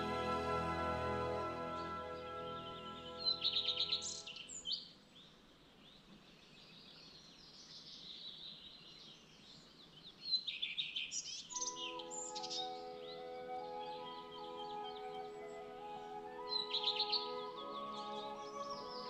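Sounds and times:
soft background music: 0.0s - 4.4s, 11.6s - 19.0s
songbird singing: 0.0s - 19.0s.

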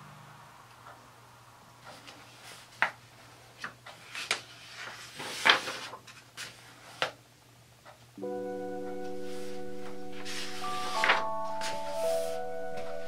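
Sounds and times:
paper pages rustling: 3.6s - 7.2s, 10.2s - 13.0s.

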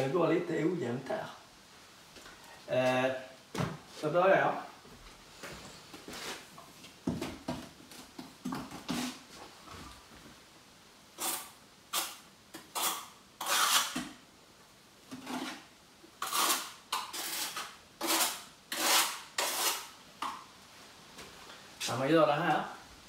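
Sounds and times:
tiling tools scraping: 11.2s - 14.1s, 15.1s - 20.4s.

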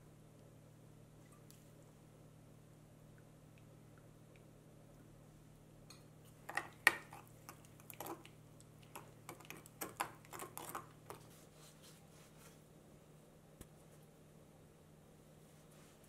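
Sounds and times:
spoon stirring wet sauce: 5.9s - 11.5s.

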